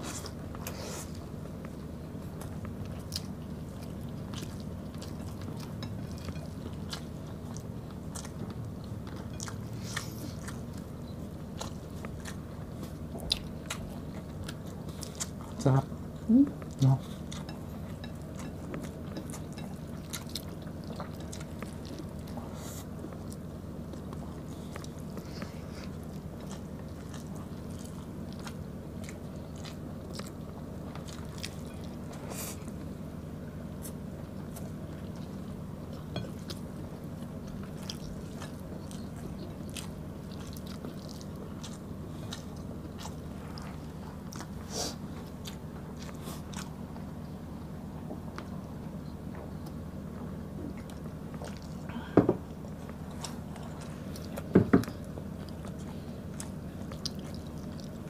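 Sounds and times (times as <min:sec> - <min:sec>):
people chewing with wet mouth sounds: 0:00.0 - 0:58.0
steady low hum: 0:00.0 - 0:58.0.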